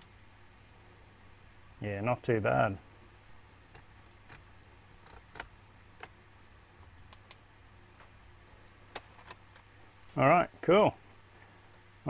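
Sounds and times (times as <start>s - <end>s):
faint small clicks: 7.1s - 7.4s.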